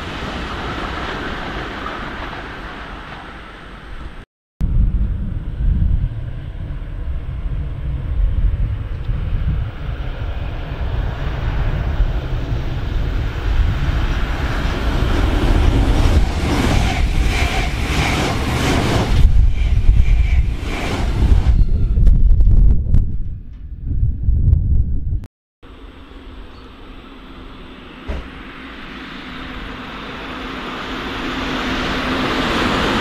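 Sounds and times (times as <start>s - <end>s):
train passing at speed: 0.0s - 22.6s, 25.7s - 33.0s
wind buffeting microphone: 3.9s - 25.3s
train wheels clacking: 15.8s - 21.2s.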